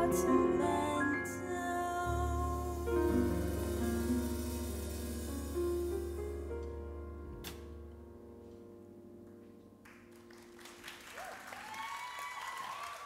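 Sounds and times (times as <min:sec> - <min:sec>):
audience applause: 0:09.9 - 0:13.0
cheering and whooping voices: 0:11.1 - 0:13.0.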